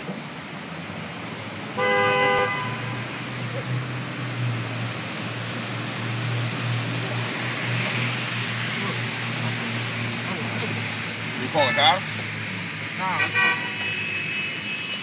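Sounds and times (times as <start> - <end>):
wet-road traffic noise: 0.0 - 15.0
car horn honk: 1.8 - 3.0, 13.2 - 15.0.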